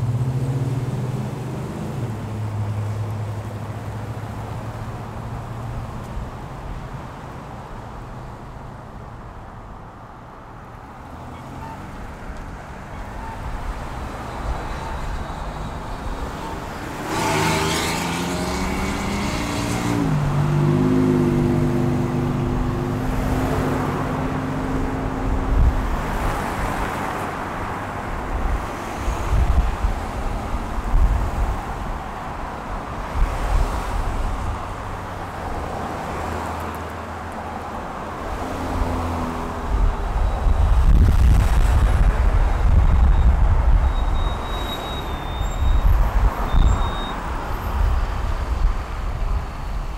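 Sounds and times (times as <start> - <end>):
road traffic noise: 0.0 - 49.9
vehicle engine passing: 16.9 - 25.4.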